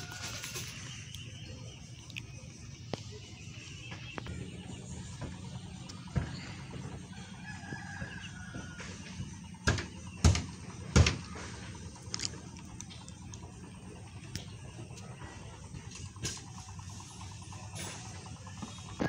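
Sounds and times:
rooster crowing: 0:07.1 - 0:09.4
loud sharp knocks: 0:09.6 - 0:11.6.

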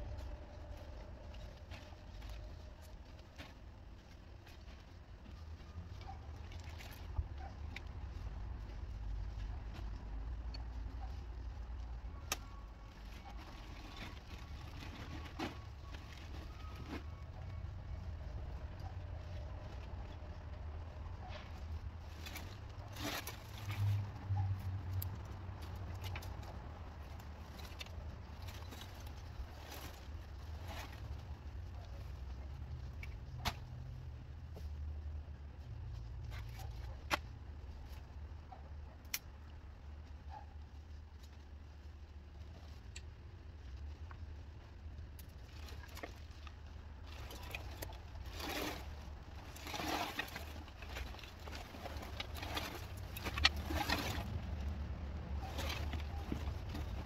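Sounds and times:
steady low hum: 0:00.0 - 0:57.0
twigs cracking and rustling: 0:00.0 - 0:57.0
roofing debris rustling and clattering: 0:12.2 - 0:20.2, 0:45.3 - 0:57.0
branches dragged through brush: 0:22.0 - 0:24.2, 0:47.0 - 0:57.0.

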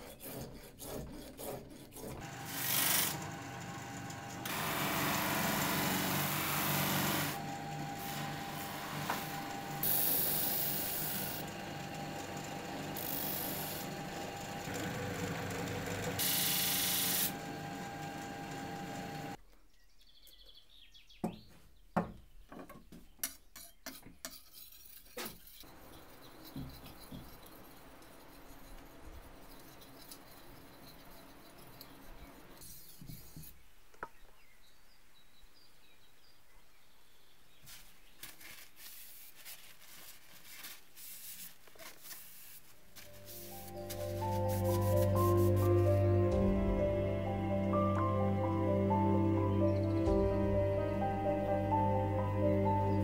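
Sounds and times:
grinding wheel on steel blade: 0:00.2 - 0:19.4, 0:25.6 - 0:32.8.

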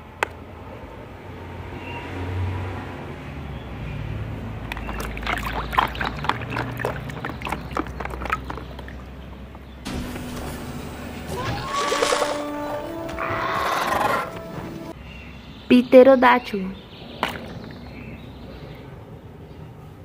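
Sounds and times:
toys splashing in muddy water: 0:04.6 - 0:09.1, 0:11.3 - 0:12.6.

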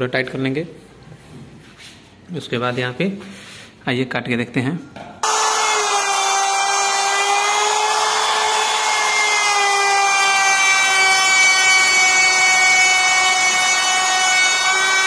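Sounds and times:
router bit cutting wood: 0:05.2 - 0:15.0
trim router whining: 0:05.2 - 0:15.0.

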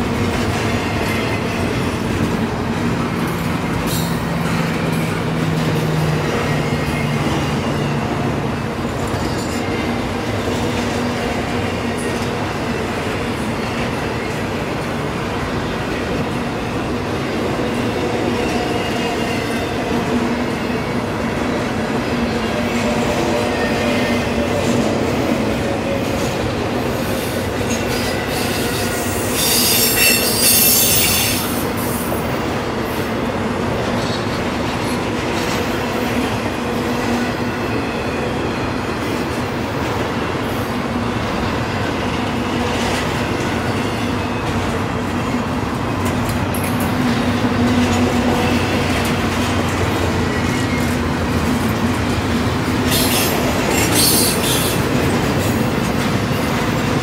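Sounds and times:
train wheels rumbling on rails: 0:00.0 - 0:57.0
high-pitched wheel screech: 0:28.3 - 0:31.5.

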